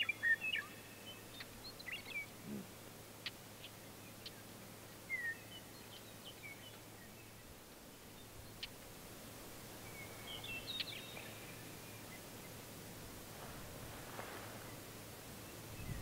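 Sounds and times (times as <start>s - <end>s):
bird chirps: 0.0s - 8.8s, 9.8s - 12.6s.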